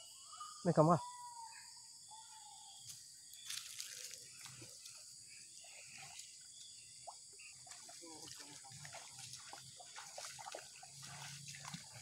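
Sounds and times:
splashing in shallow water: 3.4s - 12.0s.

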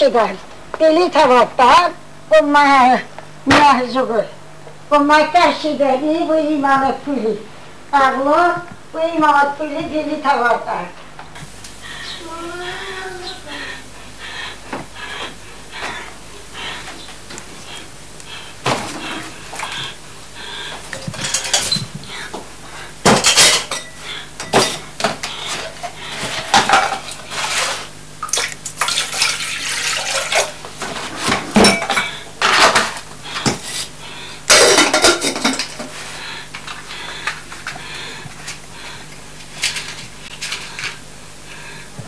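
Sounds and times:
pots and crockery clattering: 20.8s - 22.0s, 23.0s - 33.9s, 34.5s - 36.0s.

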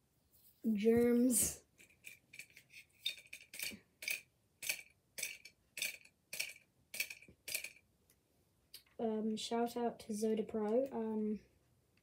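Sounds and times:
plastic toy parts clicking: 1.8s - 7.8s.

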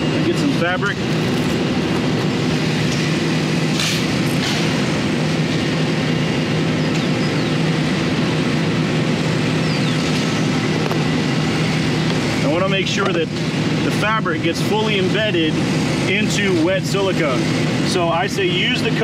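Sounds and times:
steady motor drone: 0.0s - 19.0s.

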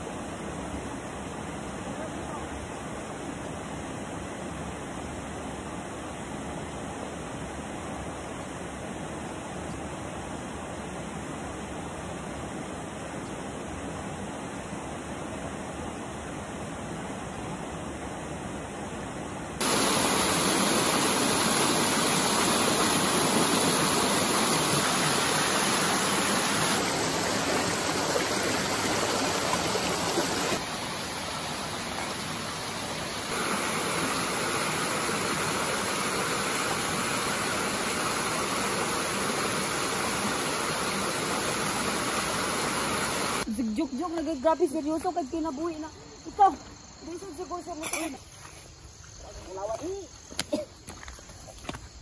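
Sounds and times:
stream flowing over rocks: 19.6s - 43.5s.

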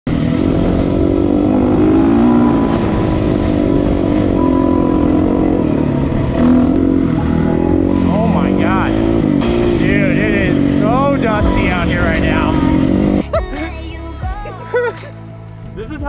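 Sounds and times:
dirt bike engine revving: 0.1s - 13.4s.

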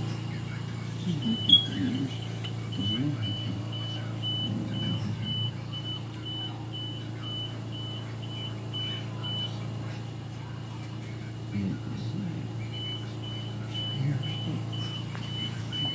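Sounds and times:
steady low hum: 0.0s - 15.9s
high electronic beep: 1.1s - 9.6s, 12.7s - 15.9s.

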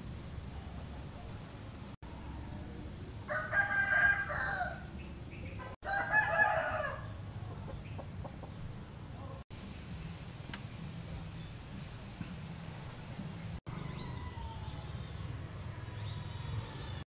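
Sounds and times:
rooster crowing: 2.1s - 4.9s, 5.8s - 7.2s, 13.7s - 17.0s.

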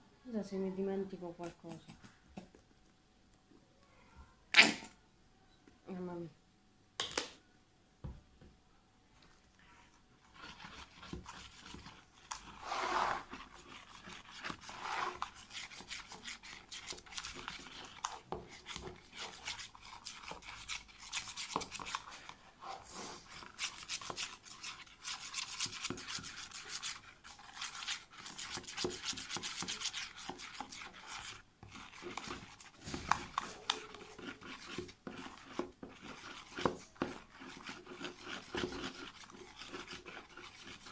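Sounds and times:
spoon stirring thick slime: 0.3s - 2.7s, 9.2s - 40.9s.

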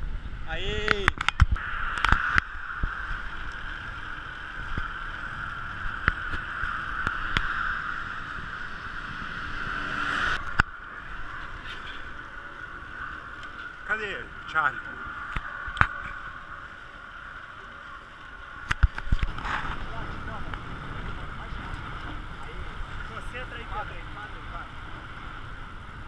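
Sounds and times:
bicycle tyres on asphalt: 0.0s - 26.0s
wind rushing: 1.4s - 17.5s.

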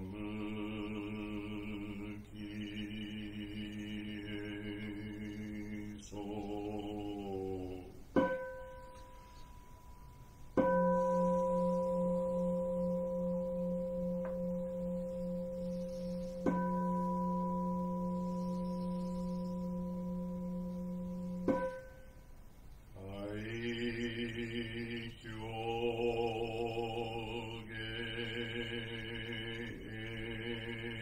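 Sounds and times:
chanting: 0.0s - 9.6s, 10.6s - 21.9s, 23.0s - 31.0s
bowl bell ringing: 8.2s - 22.2s.

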